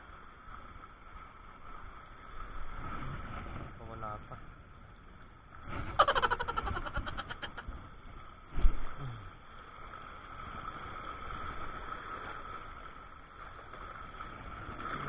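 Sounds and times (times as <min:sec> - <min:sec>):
faint constant hum: 0:03.4 - 0:15.0.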